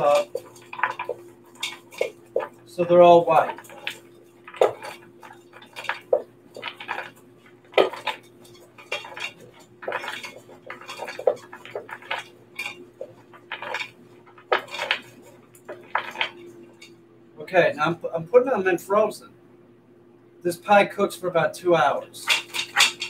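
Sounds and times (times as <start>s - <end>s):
frozen cherries knocking in metal bowl: 0.0s - 17.0s, 22.2s - 23.0s.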